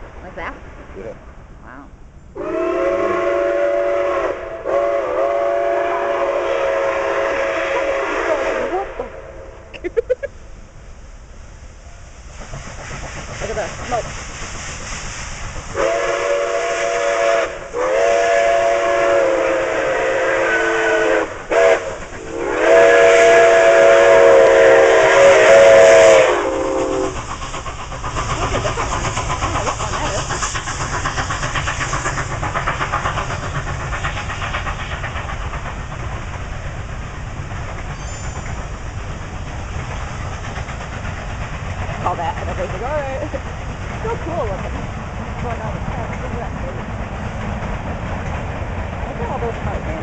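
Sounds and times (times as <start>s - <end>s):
train running noise: 0.0s - 50.0s
steam locomotive chime whistle: 2.4s - 9.6s, 15.7s - 27.2s, 37.9s - 38.8s.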